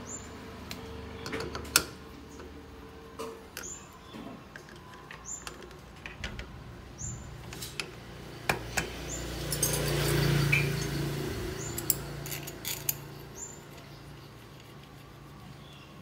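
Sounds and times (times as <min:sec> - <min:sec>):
metal parts clicking: 0:11.6 - 0:13.9.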